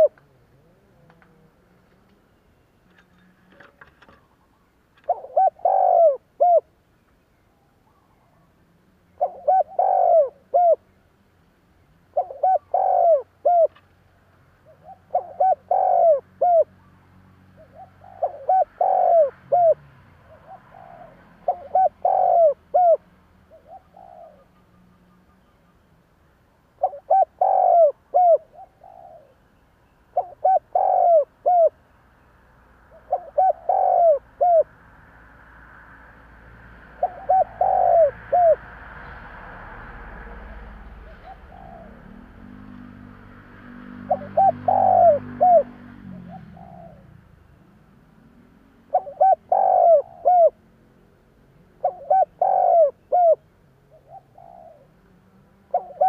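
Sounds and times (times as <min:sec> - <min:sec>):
dove cooing: 0:00.0 - 0:02.2, 0:03.0 - 0:06.7, 0:07.9 - 0:10.9, 0:12.1 - 0:13.8, 0:14.6 - 0:16.9, 0:17.6 - 0:25.1, 0:26.8 - 0:29.4, 0:30.1 - 0:31.8, 0:32.9 - 0:34.7, 0:36.8 - 0:38.7, 0:40.9 - 0:42.9, 0:43.8 - 0:47.4, 0:48.8 - 0:50.7, 0:51.7 - 0:56.0.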